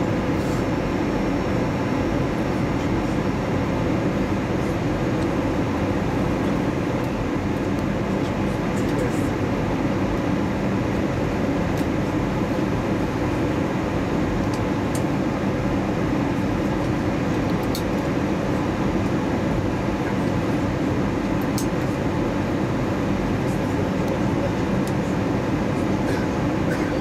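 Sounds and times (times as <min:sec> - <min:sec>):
airliner cabin engine noise: 0:00.0 - 0:27.0.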